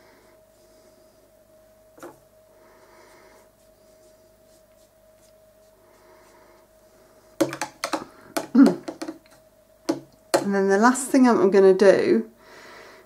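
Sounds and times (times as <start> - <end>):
faint steady hum: 0.0 - 13.0
brush stroking paint on paper: 3.0 - 6.6.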